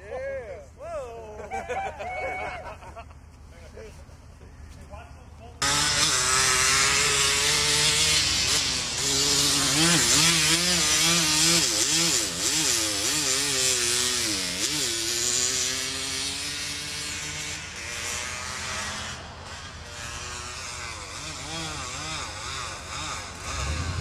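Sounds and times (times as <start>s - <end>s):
quad engine revving: 5.6s - 24.0s.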